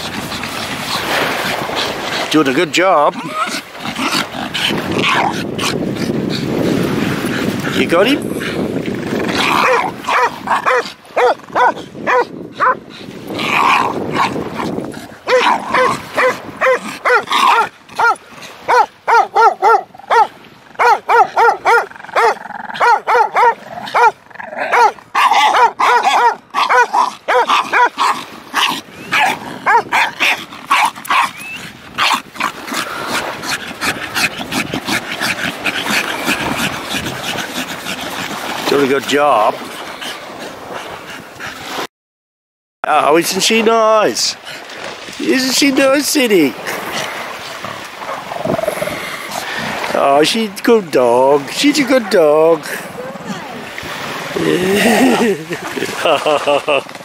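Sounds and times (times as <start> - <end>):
paws digging in sand: 0.0 - 41.8
dog whining and yipping: 9.6 - 12.8, 15.3 - 32.2.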